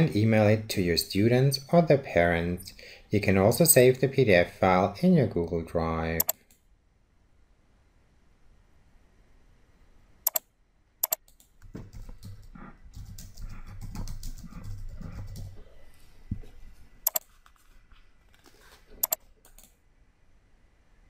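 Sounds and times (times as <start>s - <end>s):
computer mouse clicking: 11.0s - 15.6s, 18.4s - 19.8s
keyboard typing: 11.0s - 15.7s, 17.1s - 17.3s, 18.4s - 19.7s.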